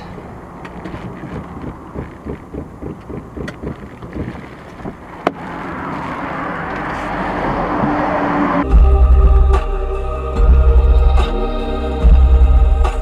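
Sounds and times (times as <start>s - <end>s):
car engine and road noise: 0.0s - 13.0s
buffeting wind: 0.8s - 9.0s.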